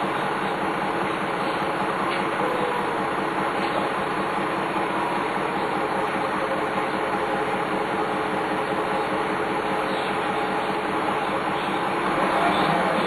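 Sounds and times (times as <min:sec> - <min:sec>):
bus diesel engine drone: 0:00.0 - 0:13.0
road noise: 0:00.0 - 0:13.0.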